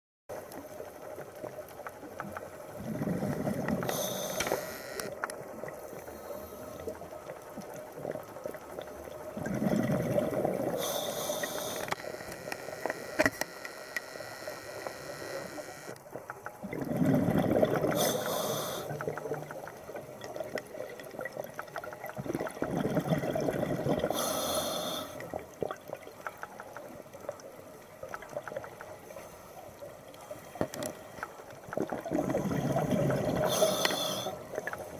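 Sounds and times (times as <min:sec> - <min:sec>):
diver breathing through regulator: 0:02.9 - 0:05.1, 0:09.5 - 0:12.2, 0:17.0 - 0:19.5, 0:24.0 - 0:25.3, 0:32.2 - 0:34.7.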